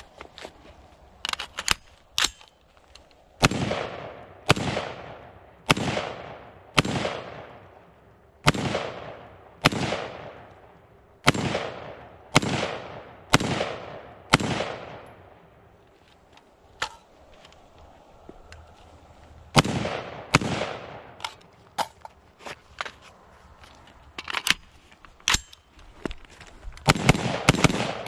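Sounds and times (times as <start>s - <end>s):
rifle shots with echo: 3.4s - 15.5s, 19.5s - 21.3s, 26.8s - 28.0s.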